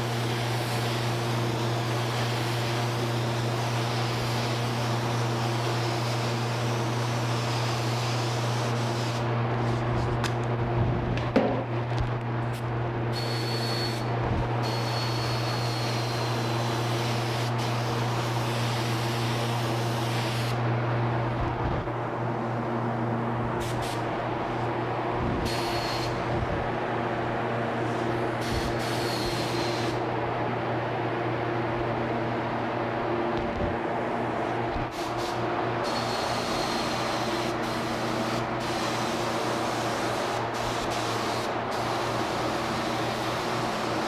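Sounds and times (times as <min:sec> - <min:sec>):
spray gun hissing: 0:34.9 - 0:44.0.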